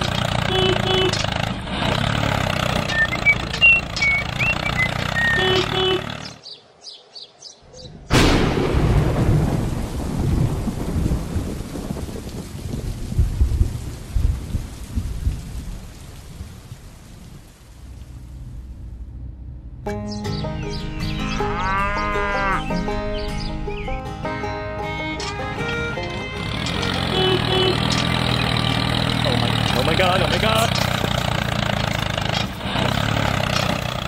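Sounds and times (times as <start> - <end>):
tractor engine running: 0.0 - 6.4, 17.8 - 34.0
rolling thunder: 8.0 - 16.7
thunderclap: 8.0 - 16.7
rain falling: 8.1 - 19.2, 24.9 - 34.0.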